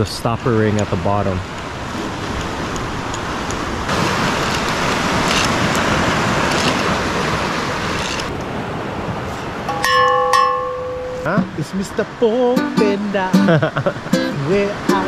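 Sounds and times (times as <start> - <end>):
surf washing on shore: 0.0 - 15.0
small metal bell ringing: 9.7 - 11.3.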